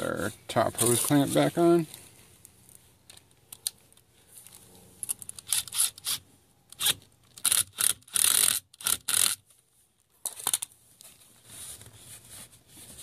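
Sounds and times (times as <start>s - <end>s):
cordless drill driver bursts: 6.8s - 9.4s.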